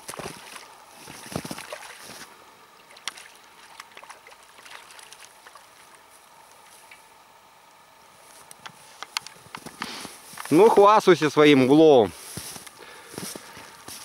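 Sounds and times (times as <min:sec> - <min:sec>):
fish splashing at water surface: 0:02.8 - 0:06.0.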